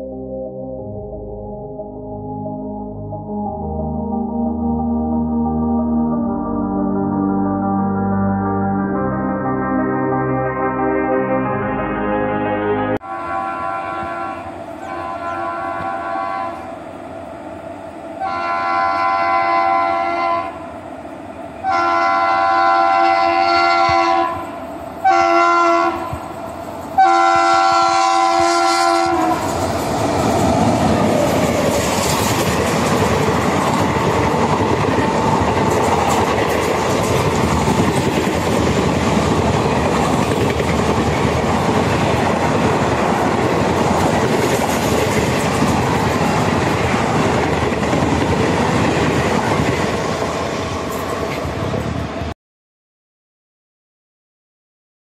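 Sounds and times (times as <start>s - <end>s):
locomotive horn blasts: 10.0s - 16.7s, 18.2s - 20.6s, 21.6s - 26.2s, 27.0s - 29.5s
train coaches rumbling and clacking: 13.3s - 52.3s.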